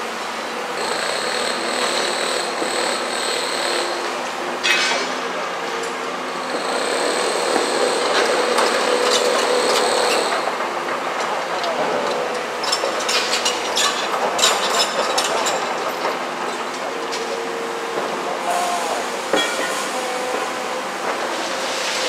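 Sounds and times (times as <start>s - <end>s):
excavator engine running: 5.7s - 13.0s.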